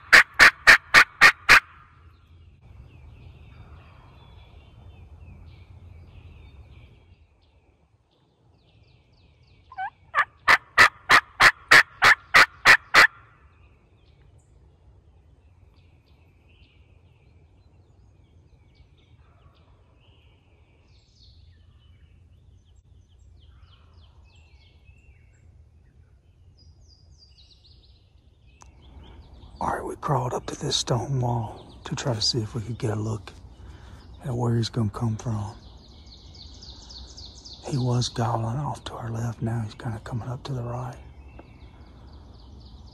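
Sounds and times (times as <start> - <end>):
turkey call yelping: 0.0 - 1.9, 9.7 - 13.2
faint songbird chirps: 1.2 - 42.9.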